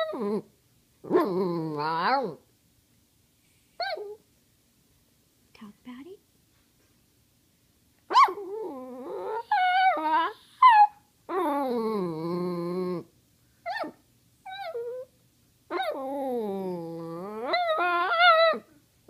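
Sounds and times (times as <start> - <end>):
small dog whining and yowling: 0.0 - 2.4, 3.8 - 4.2, 8.1 - 18.8.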